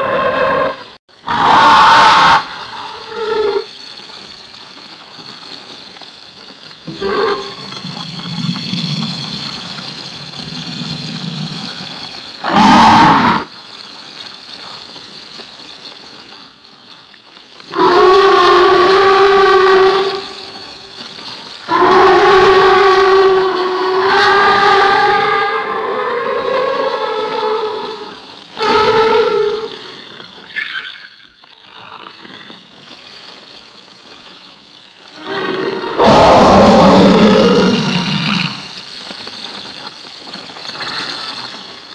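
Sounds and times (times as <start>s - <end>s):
alligator roar: 0.0s - 3.7s, 12.4s - 13.5s, 17.7s - 20.4s, 21.7s - 29.9s, 35.2s - 38.7s
alligator rattling sounds: 0.0s - 41.9s
alligator growling: 12.4s - 13.5s, 35.2s - 38.7s.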